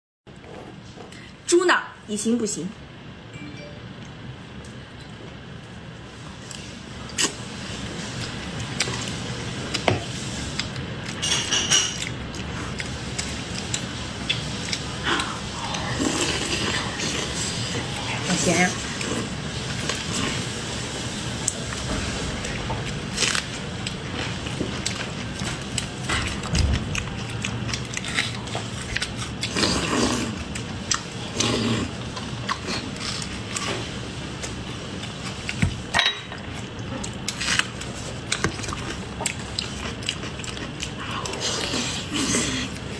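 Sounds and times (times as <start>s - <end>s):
wet chewing: 11.9s - 18.3s, 21.4s - 35.8s, 36.6s - 42.9s
wet chewing and lip-smacking: 36.6s - 41.8s.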